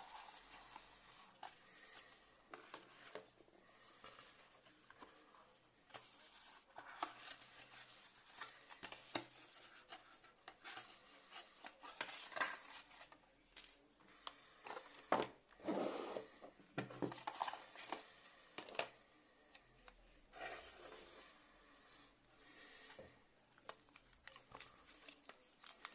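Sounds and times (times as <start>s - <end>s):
cardboard and paper rustling: 0.0s - 13.7s, 16.8s - 18.9s, 22.6s - 25.9s.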